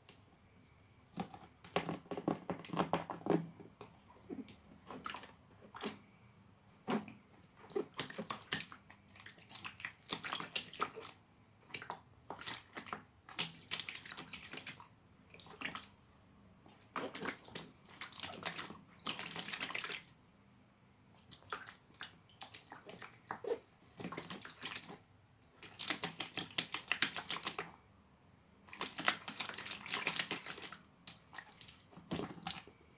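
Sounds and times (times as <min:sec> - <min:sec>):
animal splashing in shallow water: 0:21.2 - 0:25.0, 0:28.7 - 0:32.7.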